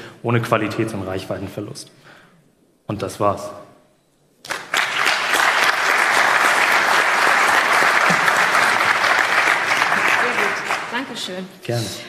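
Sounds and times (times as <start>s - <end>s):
audience applauding: 4.4s - 11.3s.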